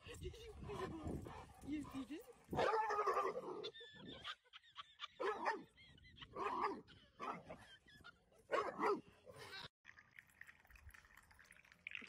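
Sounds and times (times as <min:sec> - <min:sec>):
dog barking: 0:02.5 - 0:03.7, 0:05.2 - 0:05.6, 0:06.4 - 0:07.5, 0:08.5 - 0:09.1.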